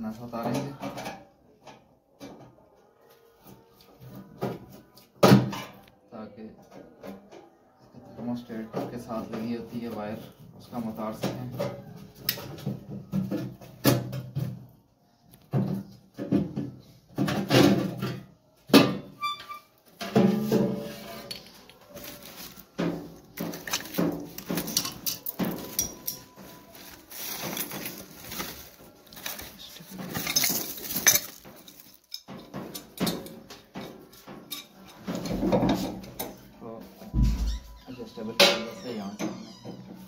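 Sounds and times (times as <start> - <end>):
sheet metal cover clanking: 15.6 - 36.4.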